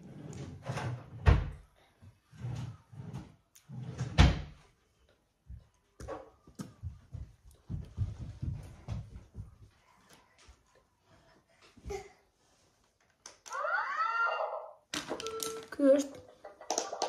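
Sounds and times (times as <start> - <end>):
irregular knocks and thumps: 5.5 - 9.7.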